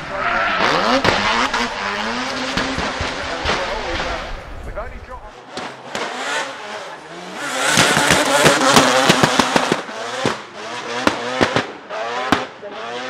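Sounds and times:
rotary engine revving: 0.0s - 13.0s
exhaust pops and bangs: 1.0s - 1.7s, 2.4s - 4.9s, 7.7s - 12.5s.

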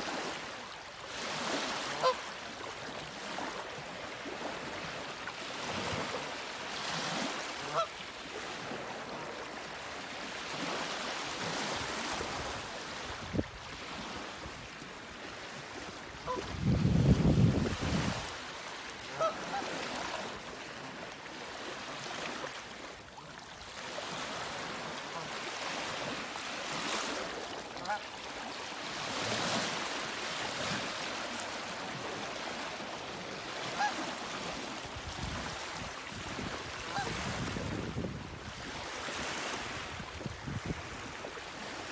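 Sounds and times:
faint duck calls: 1.8s - 2.4s, 7.5s - 8.0s, 16.2s - 16.6s, 19.0s - 20.3s, 27.7s - 28.5s, 33.5s - 34.4s, 36.8s - 37.2s
wind buffeting microphone: 16.2s - 18.3s, 36.3s - 38.7s, 39.9s - 41.2s
wind hiss on microphone: 39.8s - 40.8s.

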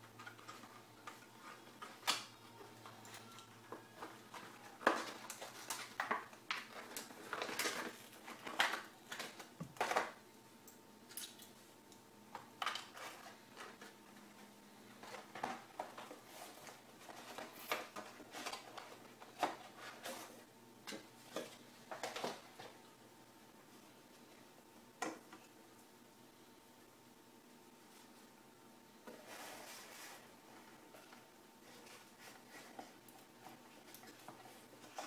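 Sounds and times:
cardboard and paper rustling: 0.1s - 10.2s, 12.6s - 22.8s, 29.0s - 35.0s
plastic packaging crinkling: 3.1s - 10.2s.

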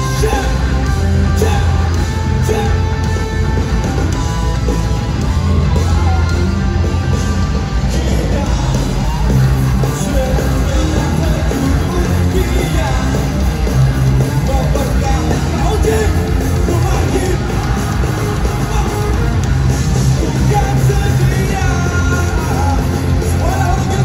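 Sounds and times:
live rock band playing: 0.0s - 24.0s
person singing: 20.1s - 24.0s.

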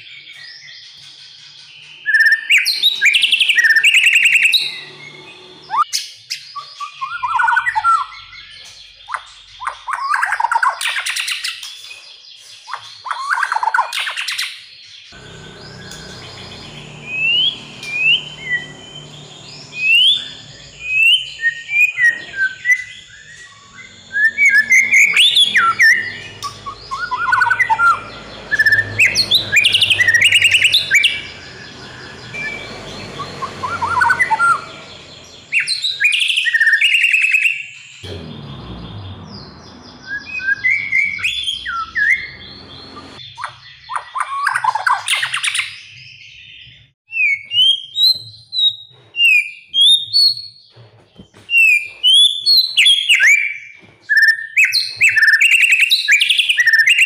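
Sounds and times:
bird singing rich whistles: 1.8s - 10.3s, 15.4s - 38.0s, 51.6s - 57.0s.

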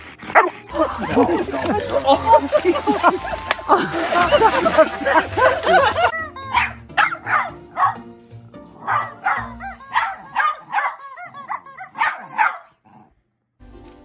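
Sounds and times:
small dog barking excitedly: 6.5s - 8.0s, 8.8s - 12.8s.

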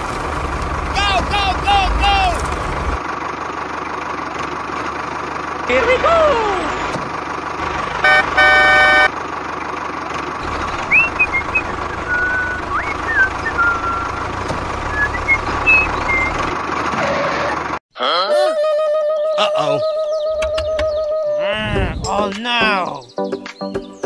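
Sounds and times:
horn toots: 8.0s - 9.1s.

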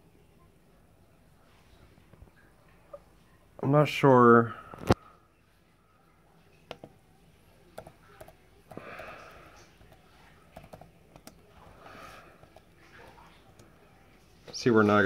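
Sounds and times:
laptop keyboard typing: 6.7s - 7.0s, 7.7s - 13.8s.

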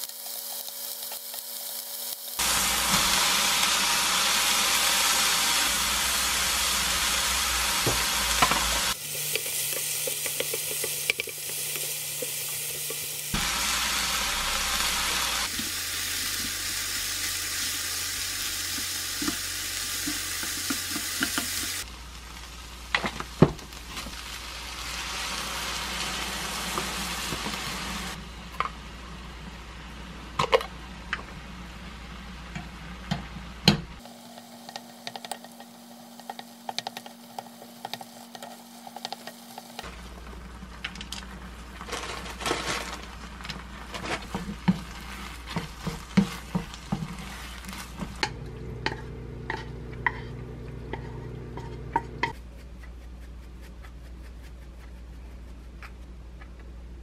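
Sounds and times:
food sizzling in frying pan: 0.0s - 28.2s, 34.0s - 52.4s
spatula knocking and scraping pan: 44.0s - 52.4s.

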